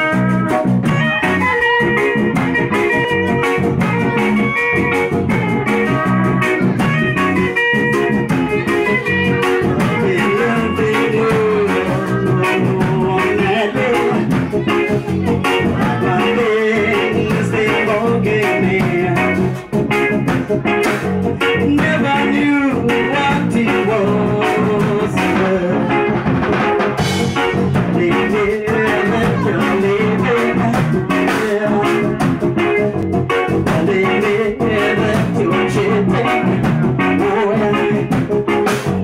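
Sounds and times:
drum kit: 0.0s - 39.0s
electric bass: 0.0s - 39.0s
person singing into microphone: 5.5s - 19.8s, 21.4s - 26.4s, 27.5s - 32.5s, 33.6s - 38.3s.

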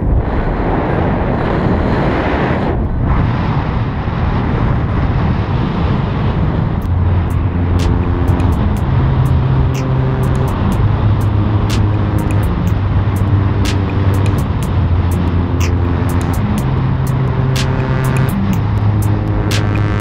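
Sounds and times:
wind rushing over microphone: 0.0s - 20.0s
music with bass and ticking beat: 6.8s - 20.0s.

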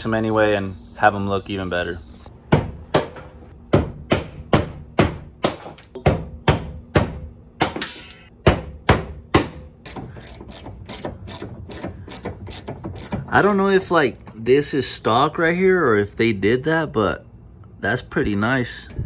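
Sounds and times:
ratchet wrench clicking: 9.9s - 13.6s.

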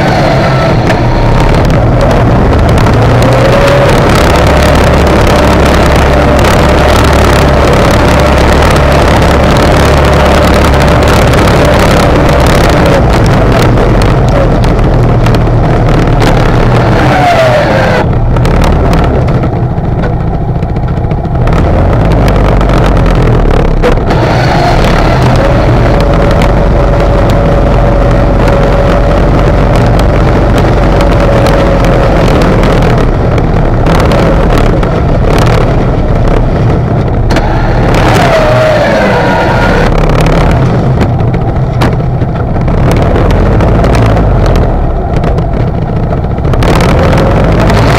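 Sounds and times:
atv engine plowing snow: 0.0s - 45.0s, 45.7s - 47.9s.

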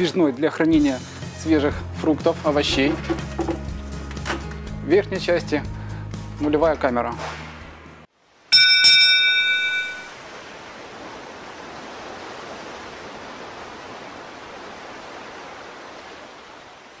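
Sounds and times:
sea surf rushing: 8.4s - 17.0s
bright chime: 8.5s - 10.2s.

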